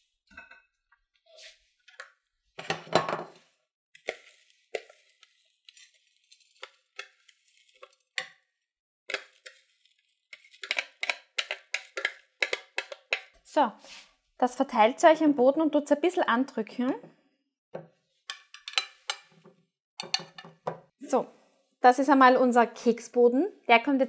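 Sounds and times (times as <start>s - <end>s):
metal spoon scraping plastic bowl: 4.0s - 8.4s, 9.1s - 13.4s.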